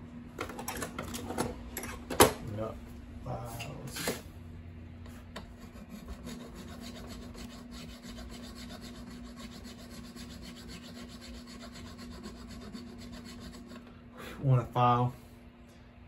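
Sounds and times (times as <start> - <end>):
files rasping in guitar nut: 5.6 - 13.8.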